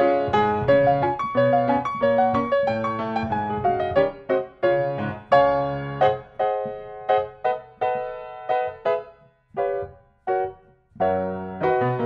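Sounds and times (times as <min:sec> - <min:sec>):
slow piano-like keyboard tune: 0:00.0 - 0:12.0.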